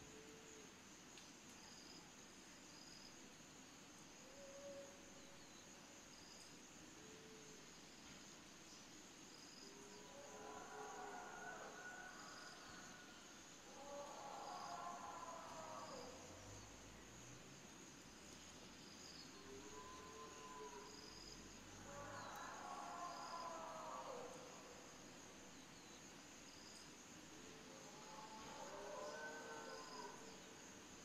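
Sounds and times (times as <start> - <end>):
crickets and insects trilling: 0.0 - 31.0
distant wavering animal calls: 13.7 - 16.8, 19.3 - 24.9, 27.7 - 30.5.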